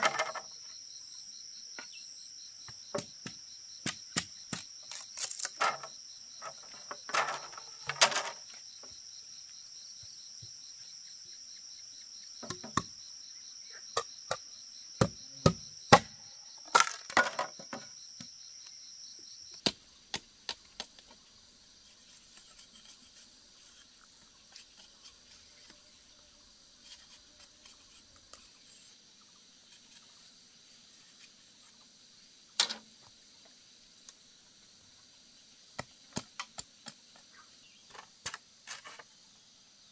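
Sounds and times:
high insect drone: 0:00.0 - 0:39.9
machete chopping bamboo: 0:02.7 - 0:05.9, 0:12.4 - 0:13.0, 0:15.0 - 0:17.4, 0:19.5 - 0:21.1.

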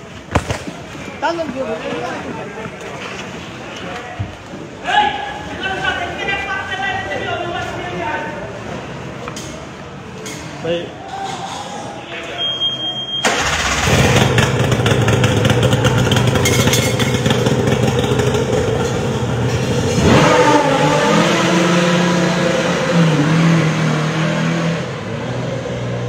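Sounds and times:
small petrol engine running: 0:13.3 - 0:21.0.

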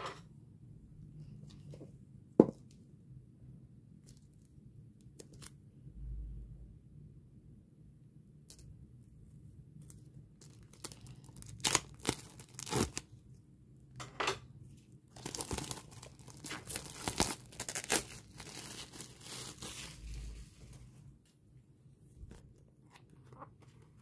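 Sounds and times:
plastic wrap crinkling: 0:09.9 - 0:13.0, 0:15.1 - 0:20.5
shrink-wrap ripping: 0:10.4 - 0:13.0, 0:15.2 - 0:20.0.

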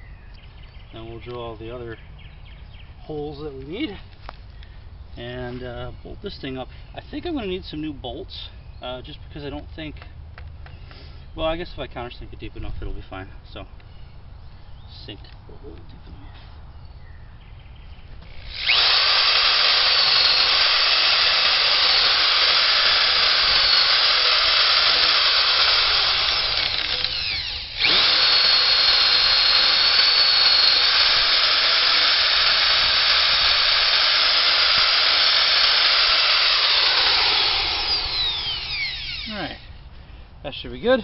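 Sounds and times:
electric drill boring into wood: 0:18.2 - 0:39.8.

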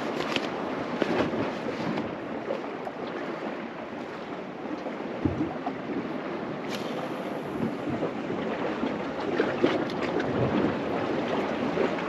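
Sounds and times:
wind over microphone: 0:00.0 - 0:12.0
sea washing against rocks: 0:05.3 - 0:12.0.

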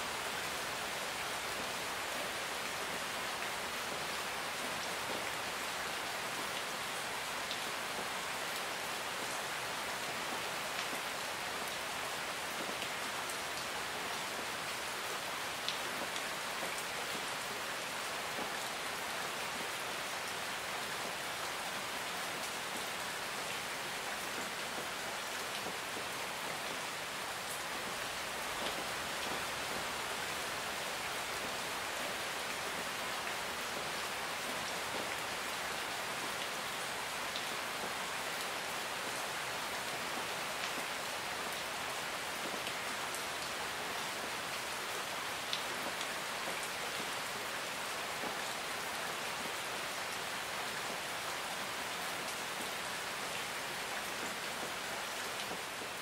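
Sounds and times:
steady rain hiss: 0:00.0 - 0:56.0.

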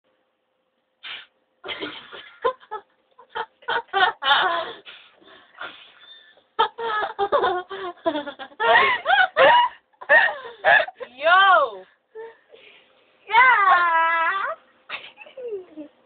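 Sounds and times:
person giggling: 0:01.7 - 0:05.0, 0:05.7 - 0:11.1, 0:14.9 - 0:16.0.

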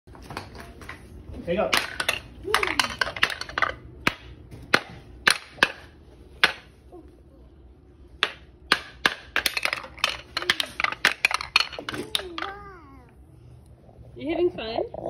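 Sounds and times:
wooden mallet striking wooden toy: 0:08.2 - 0:12.6.

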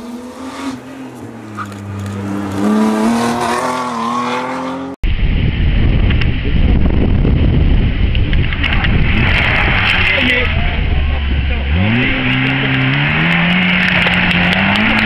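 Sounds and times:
rally car engine revving: 0:00.0 - 0:05.0, 0:07.9 - 0:15.0
wind buffeting microphone: 0:05.0 - 0:12.3.

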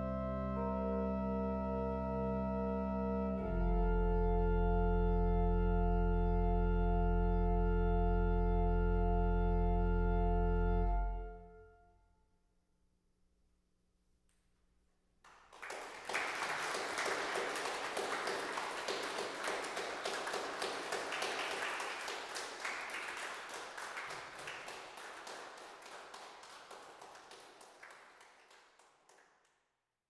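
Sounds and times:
audience applauding: 0:15.3 - 0:29.5.

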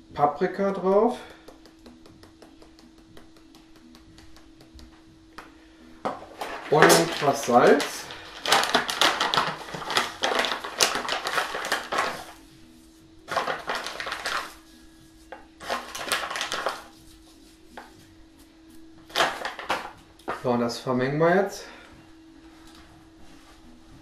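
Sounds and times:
plastic bags crinkling: 0:06.3 - 0:12.4, 0:13.3 - 0:14.7, 0:15.6 - 0:16.9, 0:19.0 - 0:20.5.

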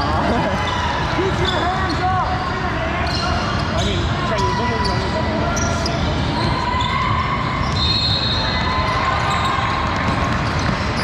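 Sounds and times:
sneakers squeaking on court: 0:09.2 - 0:11.0.

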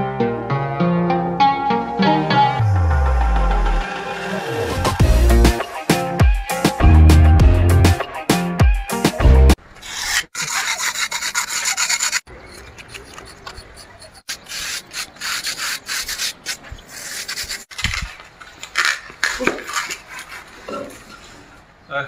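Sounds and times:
music: 0:00.0 - 0:09.6
rough rubbing or scraping: 0:09.5 - 0:21.6.

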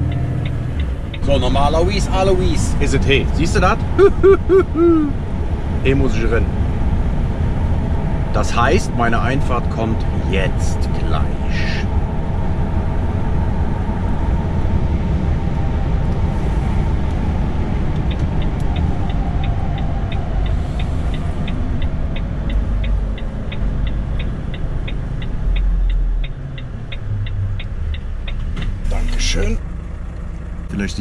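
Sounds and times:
turn signal ticking: 0:00.0 - 0:05.8, 0:13.5 - 0:31.0
truck engine and road rumble: 0:00.0 - 0:31.0.

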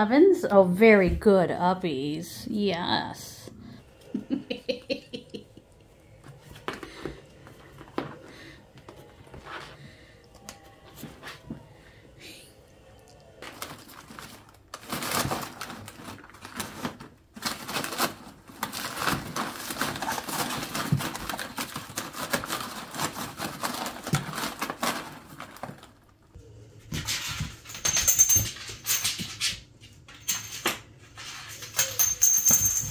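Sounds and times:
cat rustling in cardboard box: 0:13.5 - 0:26.0.

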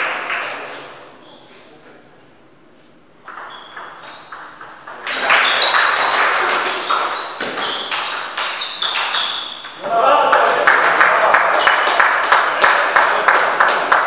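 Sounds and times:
crowd clapping and shouting: 0:09.9 - 0:14.0.

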